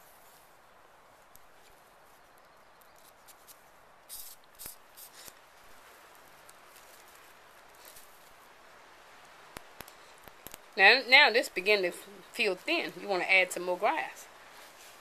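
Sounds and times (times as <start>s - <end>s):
grass strips rustling and scraping: 0.0s - 8.6s, 12.4s - 15.0s
faint steady hiss: 0.0s - 15.0s.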